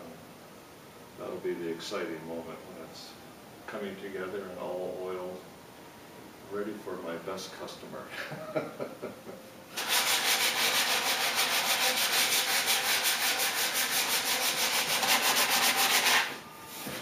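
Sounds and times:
sandpaper rubbing on wood: 0:09.7 - 0:16.4.

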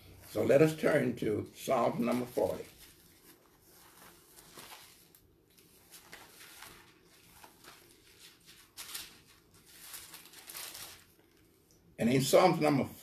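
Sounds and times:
pages being turned: 0:01.7 - 0:11.7.

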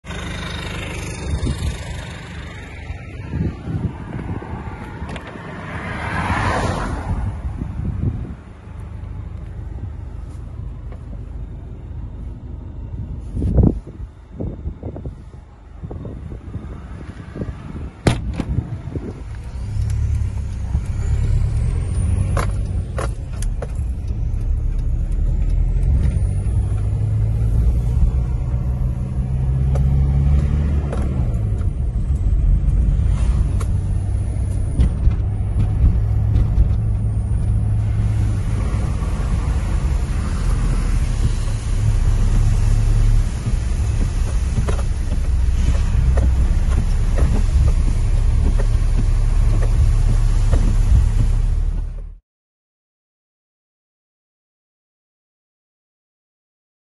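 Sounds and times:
car engine drone: 0:00.0 - 0:52.2
thump: 0:18.0 - 0:18.6
tyres hissing on wet road: 0:37.9 - 0:51.7.

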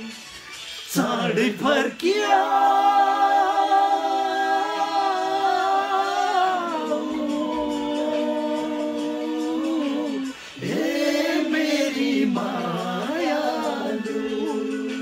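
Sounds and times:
men singing a cappella: 0:00.9 - 0:15.0.

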